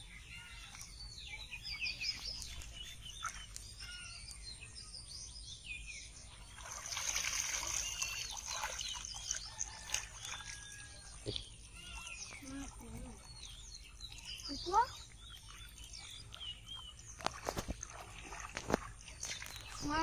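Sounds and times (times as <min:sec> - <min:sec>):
wading through shallow water: 0:00.0 - 0:04.8, 0:06.0 - 0:20.0
small birds chirping: 0:00.0 - 0:20.0.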